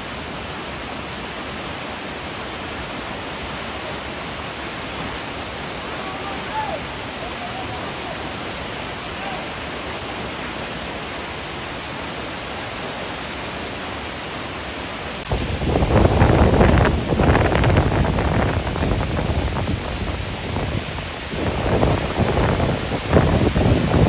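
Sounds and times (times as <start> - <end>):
waterfall rushing: 0.0 - 24.0
wind buffeting microphone: 15.3 - 24.0.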